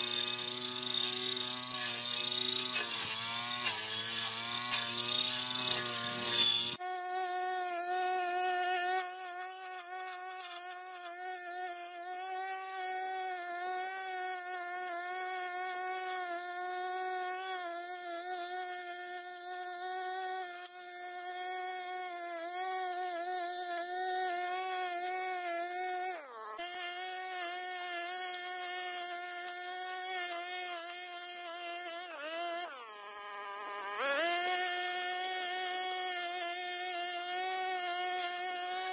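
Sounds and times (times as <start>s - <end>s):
brush cutter engine buzzing: 0.0s - 38.9s.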